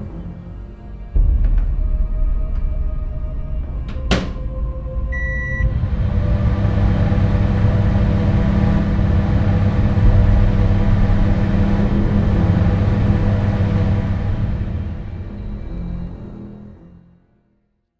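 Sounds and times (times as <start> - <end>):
short electronic beep: 5.2 - 5.7
appliance humming: 5.2 - 15.3.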